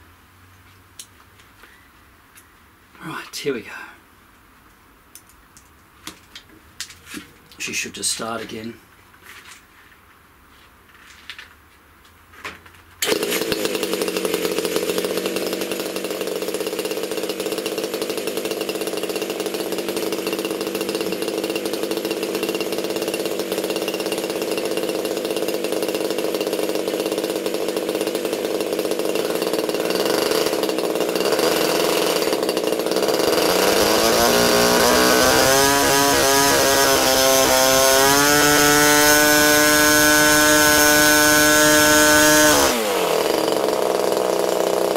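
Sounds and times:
model aircraft engine revving: 0:13.0 - 0:44.9.

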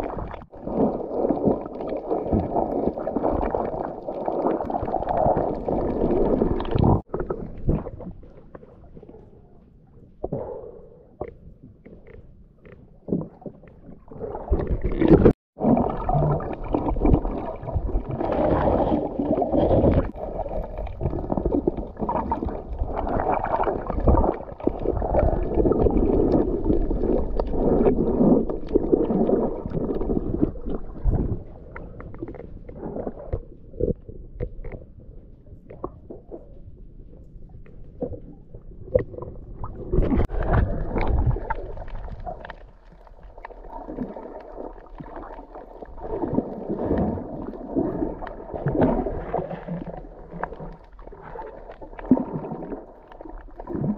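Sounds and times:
underwater sloshing and gurgling: 0:00.0 - 0:53.9.

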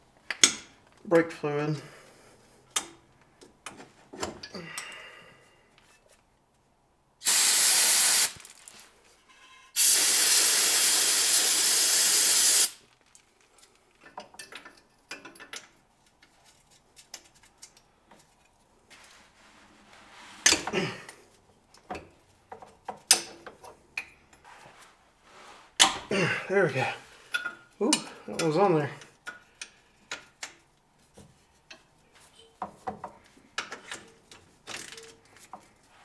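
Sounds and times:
aerosol spray can spraying: 0:07.2 - 0:08.4, 0:09.8 - 0:12.8
hand tools tapping metal: 0:27.3 - 0:28.6.

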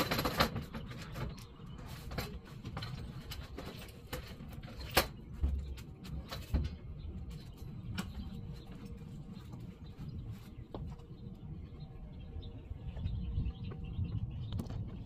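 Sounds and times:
footsteps walking away: 0:07.4 - 0:11.8.

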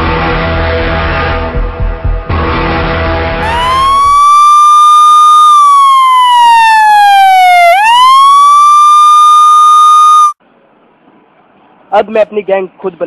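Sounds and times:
siren wailing: 0:03.4 - 0:10.4.

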